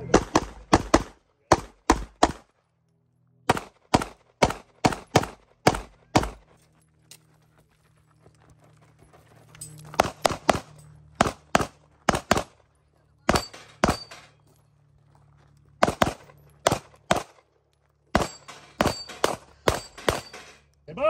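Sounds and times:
pistol shots: 0.0s - 2.5s, 3.5s - 6.4s, 10.0s - 12.6s, 13.2s - 14.3s, 15.8s - 17.4s, 18.1s - 20.6s.

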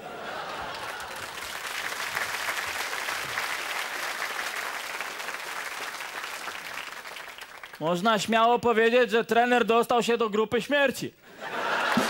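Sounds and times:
audience applauding: 0.0s - 8.0s, 11.6s - 12.0s.

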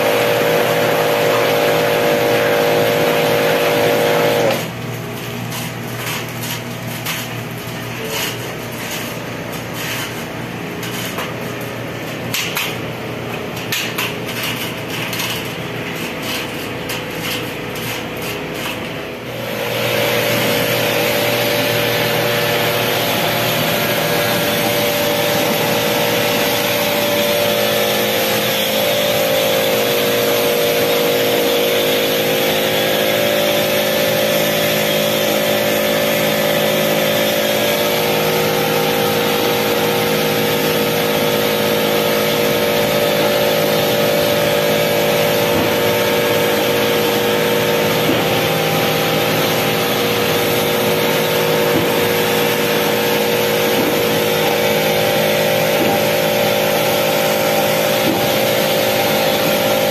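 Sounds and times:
pressure washer motor: 0.0s - 5.2s, 17.2s - 59.9s.

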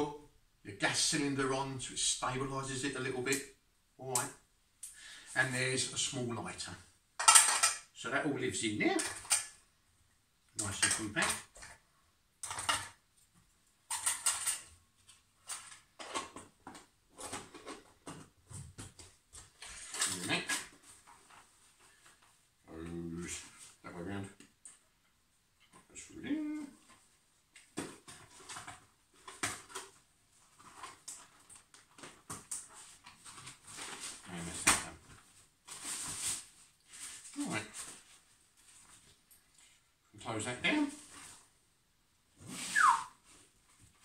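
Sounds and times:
metal clinking and scraping: 7.2s - 7.8s, 13.9s - 14.8s.

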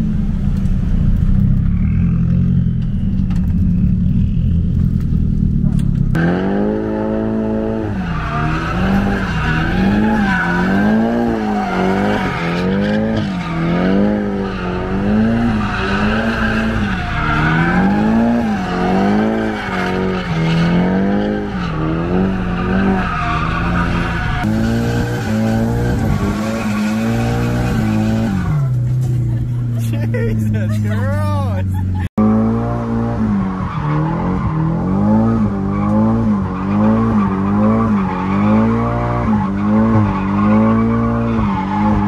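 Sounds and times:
car engine revving: 0.0s - 42.0s
tyres squealing: 7.8s - 28.7s.

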